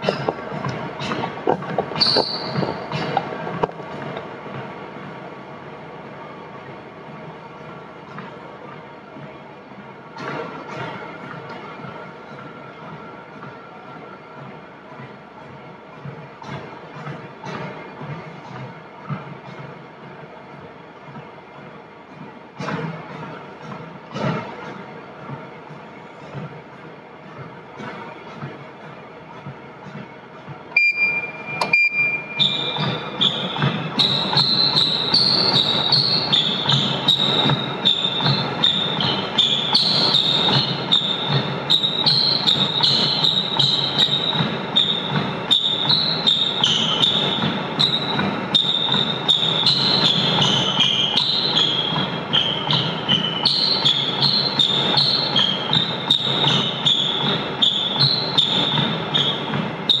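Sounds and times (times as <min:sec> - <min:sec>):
footfalls on treadmill belt: 0:00.0 - 0:04.8, 0:10.2 - 0:13.6, 0:14.4 - 1:00.0
treadmill whine: 0:00.0 - 1:00.0
short beeps: 0:30.8 - 0:32.7.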